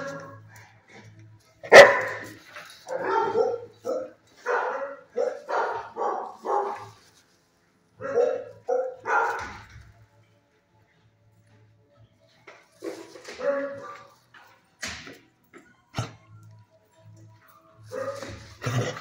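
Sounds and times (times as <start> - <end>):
dog barking: 1.6 - 7.0, 8.0 - 9.7, 12.9 - 14.2, 17.9 - 19.0.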